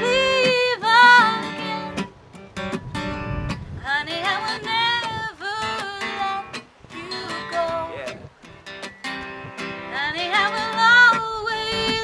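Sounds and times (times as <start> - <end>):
person singing: 0.0 - 2.0, 3.8 - 8.3, 9.9 - 12.0
acoustic guitar strumming: 0.0 - 12.0.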